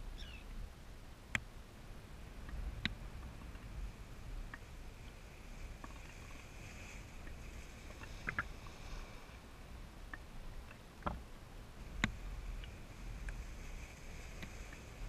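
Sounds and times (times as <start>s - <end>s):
small waves lapping and splashing: 0.2s - 15.0s
sharp splash ticks: 7.2s - 8.8s, 11.9s - 13.4s.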